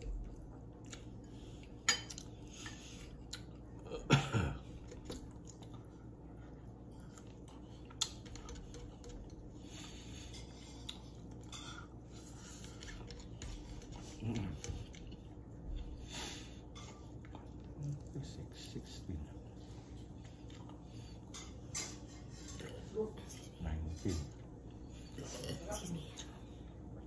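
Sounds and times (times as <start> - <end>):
chewing: 0.0 - 4.0, 4.6 - 23.6
cutlery clinking against plates: 1.8 - 2.8, 21.2 - 22.8.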